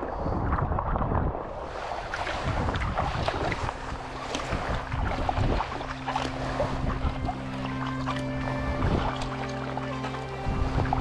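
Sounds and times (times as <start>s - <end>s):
paddle blades splashing: 0.0s - 11.0s
water washing along hull: 0.0s - 11.0s
wind buffeting microphone: 0.0s - 11.0s
low background music: 3.5s - 11.0s.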